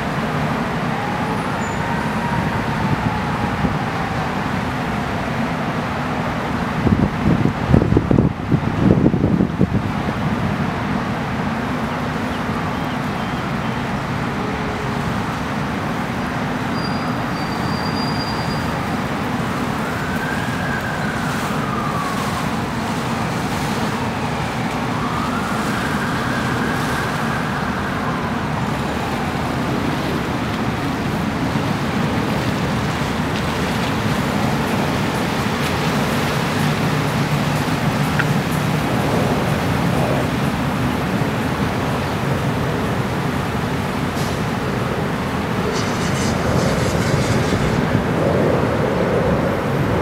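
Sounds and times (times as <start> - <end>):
boat engines rumbling: 0.0 - 50.0
churning water: 0.0 - 50.0
siren wailing: 0.5 - 5.1, 18.4 - 30.4.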